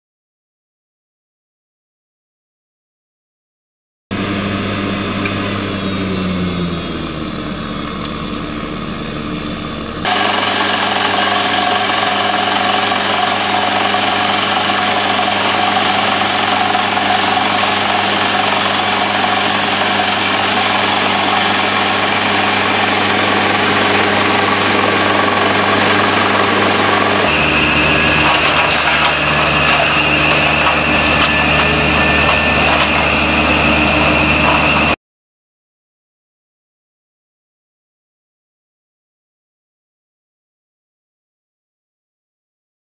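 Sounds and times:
diesel engine running: 0:04.1 - 0:35.0
steady high whine: 0:04.1 - 0:35.0
drill rig drilling into rock: 0:10.0 - 0:35.0.

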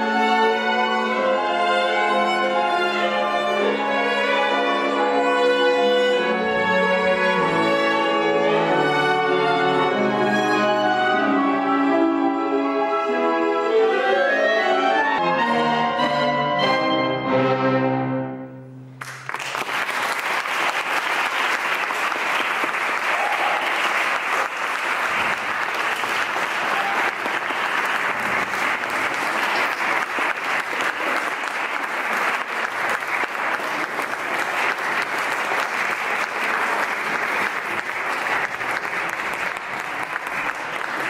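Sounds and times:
audience applause: 0:19.0 - 0:41.0.

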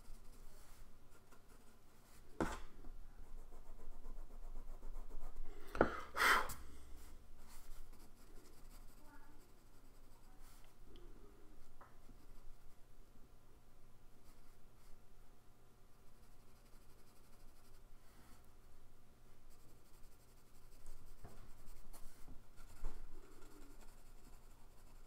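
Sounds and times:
pencil scratching on paper: 0:03.3 - 0:05.4, 0:07.4 - 0:10.7, 0:16.1 - 0:17.8, 0:19.5 - 0:25.0.

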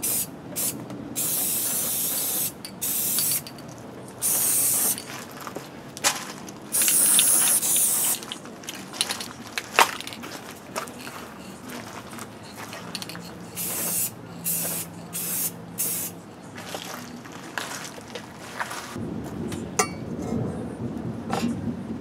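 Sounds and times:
spray can hissing: 0:00.0 - 0:03.5, 0:04.2 - 0:05.0, 0:06.7 - 0:08.3, 0:13.5 - 0:16.2.

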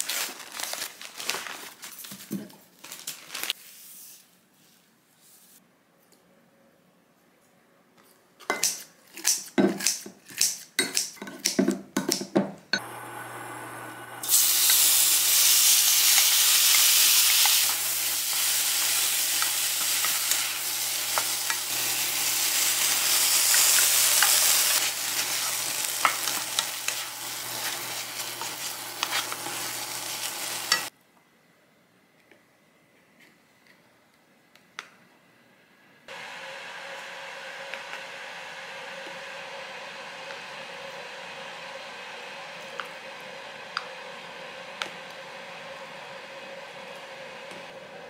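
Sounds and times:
food sizzling in a pan: 0:12.8 - 0:30.9.

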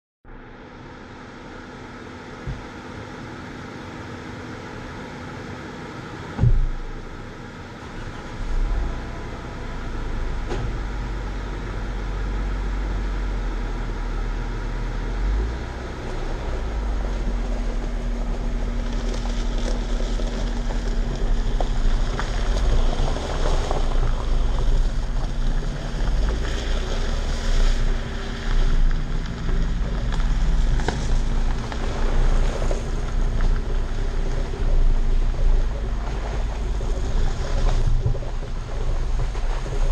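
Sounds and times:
car engine running: 0:00.3 - 0:39.9
sharp thump: 0:06.4 - 0:06.8
wind rumble on microphone: 0:06.4 - 0:39.9
tyres on gravel: 0:15.0 - 0:39.9.

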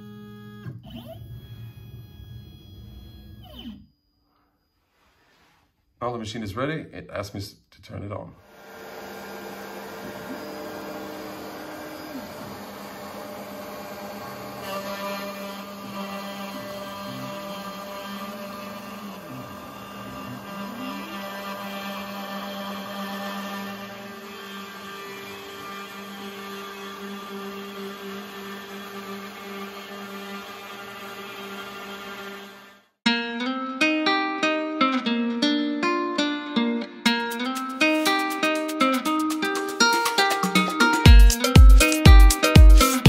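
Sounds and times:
router spinning: 0:00.1 - 0:03.9, 0:08.5 - 0:32.9.

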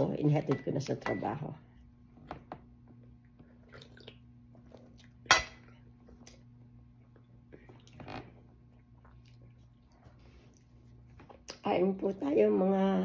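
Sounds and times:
steady low hum: 0:00.0 - 0:13.0
soft chewing: 0:03.0 - 0:11.7.

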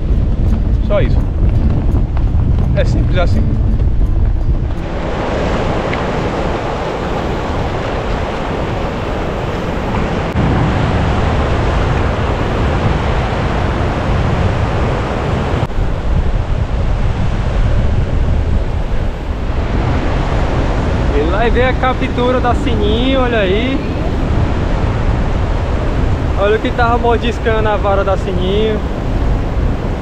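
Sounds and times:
wind on microphone: 0:00.0 - 0:30.0
waves breaking on beach: 0:04.7 - 0:30.0.

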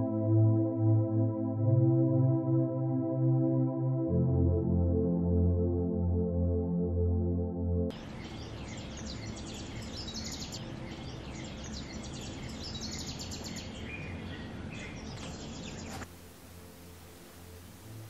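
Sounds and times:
small birds chirping: 0:07.9 - 0:16.1
background noise: 0:07.9 - 0:18.0
faint hiss: 0:15.3 - 0:18.0.

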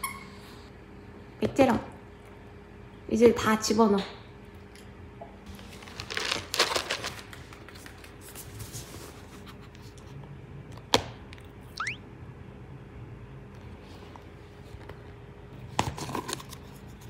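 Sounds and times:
short rising squeak: 0:11.8 - 0:12.0.

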